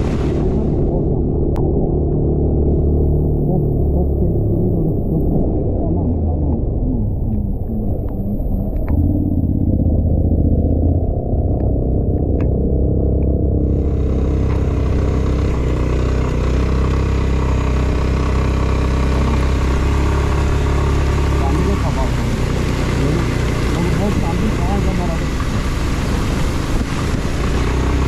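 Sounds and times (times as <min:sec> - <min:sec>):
wind and road noise: 0:00.0 - 0:28.0
scooter engine running: 0:07.1 - 0:28.0.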